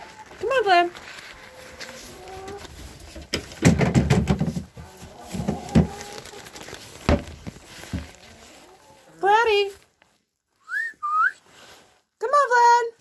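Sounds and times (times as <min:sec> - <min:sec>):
thumps: 0:03.2 - 0:04.8, 0:07.0 - 0:08.2.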